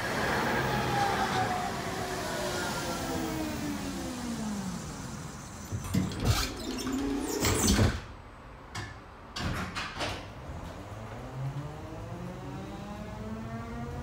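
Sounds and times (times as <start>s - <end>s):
tram motors whining: 0.0s - 7.8s, 10.4s - 14.0s
loud clunks and rattles: 8.8s - 10.3s.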